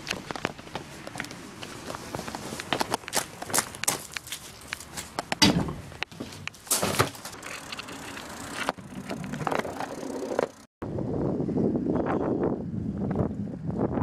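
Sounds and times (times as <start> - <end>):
tyres rolling on asphalt: 0.0 - 10.7
bicycle handling knocks and clicks: 4.7 - 10.6
wind on microphone: 10.8 - 14.0.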